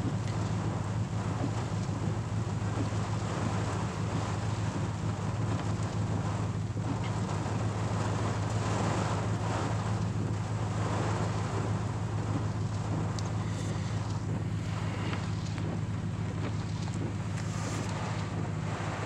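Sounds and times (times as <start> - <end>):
defroster fan blowing: 0.0 - 19.0
rain and wind on vehicle roof: 0.0 - 19.0
truck engine idling: 11.5 - 19.0.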